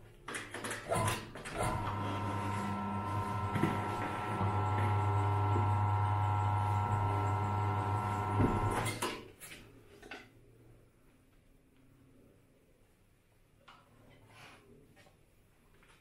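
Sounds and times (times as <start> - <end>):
electric motor humming: 1.7 - 8.8.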